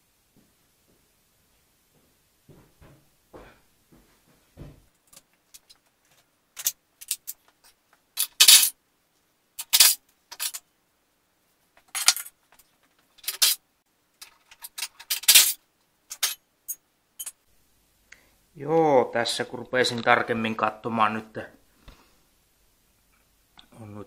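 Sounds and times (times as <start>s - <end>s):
metal tools clinking: 8.2s - 8.7s, 14.2s - 17.4s.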